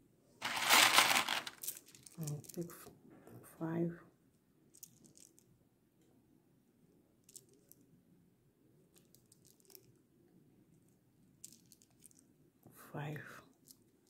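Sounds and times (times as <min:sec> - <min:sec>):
beads clicking: 0:00.4 - 0:02.2.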